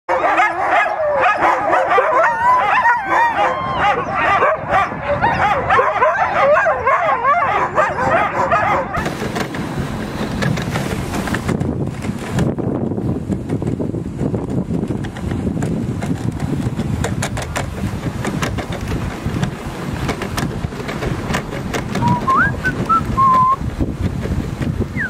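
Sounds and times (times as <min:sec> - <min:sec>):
sled dogs howling and yipping: 0:00.1 - 0:09.3, 0:20.8 - 0:23.6
wind noise: 0:00.1 - 0:25.0.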